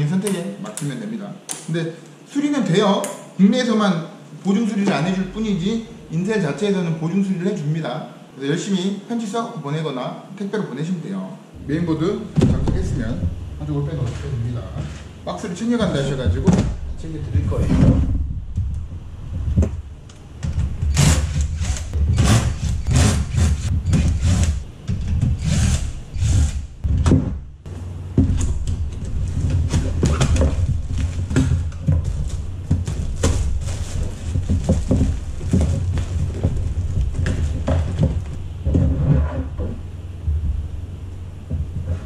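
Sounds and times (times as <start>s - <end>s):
constant low hum: 0.0s - 9.6s, 11.2s - 42.0s
knocks and clunks of handling parts: 26.8s - 42.0s
cardboard packaging rustling: 28.6s - 38.5s.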